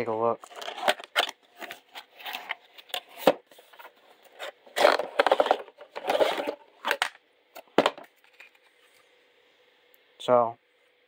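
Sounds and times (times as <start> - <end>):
plastic rack scraping out of box: 4.3 - 6.6.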